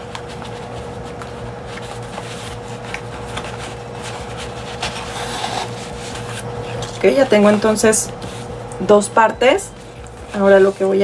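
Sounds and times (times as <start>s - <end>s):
paper rustling: 0.0s - 8.7s
faint steady hum: 0.0s - 11.0s.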